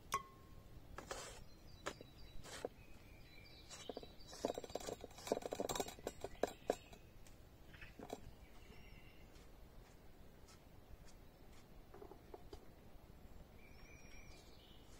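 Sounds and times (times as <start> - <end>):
faint bird chirps: 0.1 - 9.5, 11.0 - 14.9
utensils tapping and clicking: 3.7 - 7.0.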